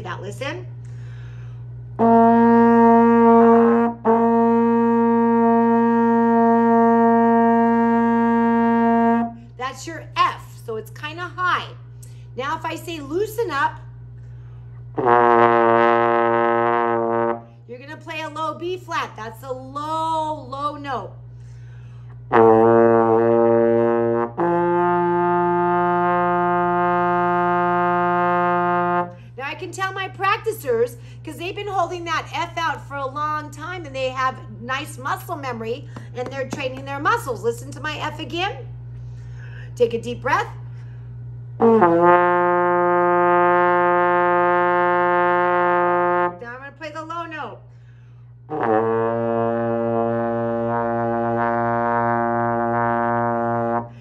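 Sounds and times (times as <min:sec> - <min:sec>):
trombone holding high note: 0:02.0 - 0:09.4, 0:15.0 - 0:17.5, 0:22.2 - 0:29.2, 0:41.6 - 0:46.4.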